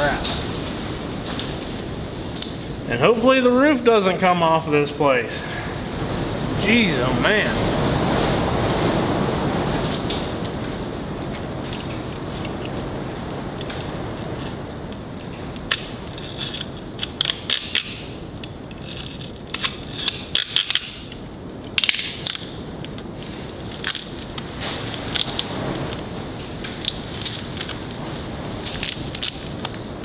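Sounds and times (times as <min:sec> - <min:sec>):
high wind buffeting building: 0:00.0 - 0:30.0
plastic wrap and tape crinkling: 0:07.4 - 0:30.0.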